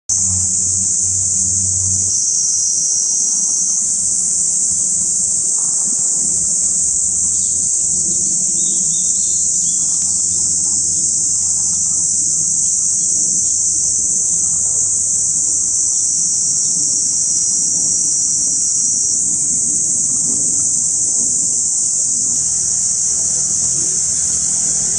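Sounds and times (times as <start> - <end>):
low hum: 0.1 - 2.3
cicada chorus: 0.1 - 24.9.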